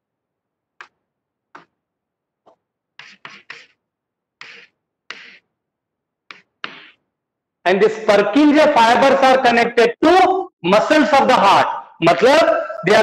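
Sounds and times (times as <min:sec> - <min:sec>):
chalk scratching on blackboard: 0:03.0 - 0:03.8, 0:04.4 - 0:05.5.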